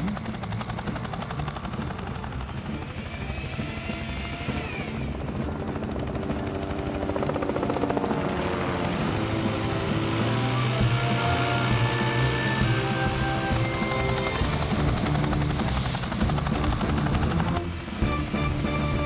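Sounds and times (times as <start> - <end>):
background music: 0.0 - 19.0
helicopter rotor chopping: 0.0 - 19.0.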